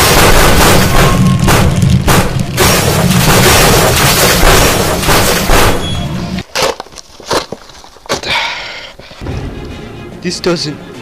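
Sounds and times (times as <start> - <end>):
battle booms and bangs: 0.0 - 6.2.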